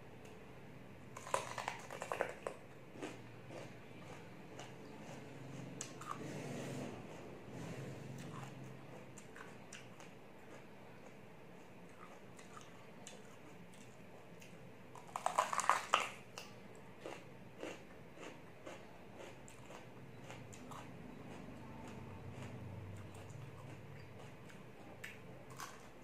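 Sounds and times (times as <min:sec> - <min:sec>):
bell pepper crunch: 0:01.1 - 0:06.2, 0:14.9 - 0:26.0
chewing with small crunches: 0:01.1 - 0:26.0.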